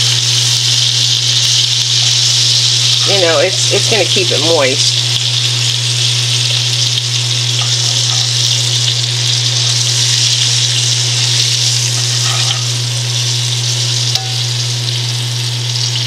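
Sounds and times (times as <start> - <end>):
fish frying in oil: 0.0 - 16.0
low hum: 0.0 - 16.0.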